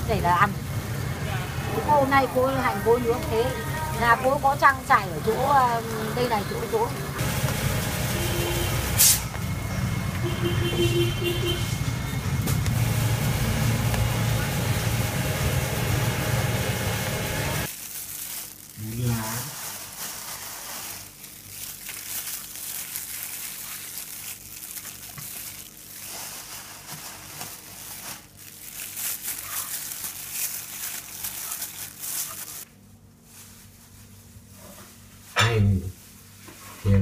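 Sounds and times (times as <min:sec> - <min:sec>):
steady low hum: 0:00.0 - 0:17.7
crinkling and rustling from handling: 0:17.6 - 0:35.4.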